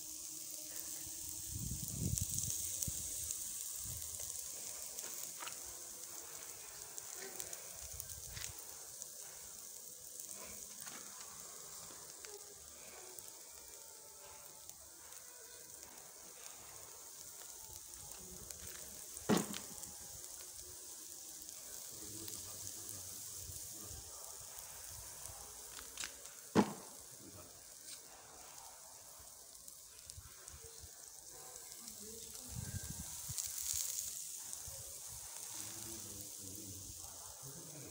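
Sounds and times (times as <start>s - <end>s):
meat sizzling on a grill: 0.0s - 37.9s
sharp pops: 17.4s - 20.6s, 25.0s - 27.2s.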